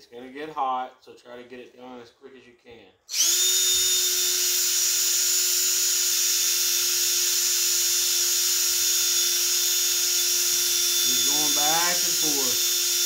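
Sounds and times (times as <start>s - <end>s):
cordless drill high whine: 3.1s - 13.0s.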